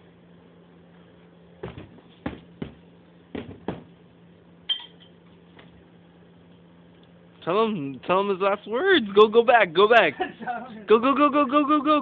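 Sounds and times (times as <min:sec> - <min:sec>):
steady low hum: 0:00.0 - 0:12.0
sharp knocks: 0:01.6 - 0:03.9
short ringing clink: 0:04.7 - 0:05.2.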